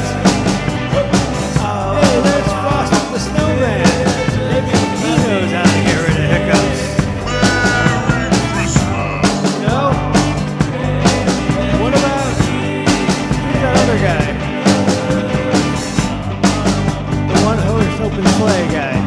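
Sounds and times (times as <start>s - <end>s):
rock music: 0.0s - 19.0s
steady drum beat: 0.0s - 19.0s.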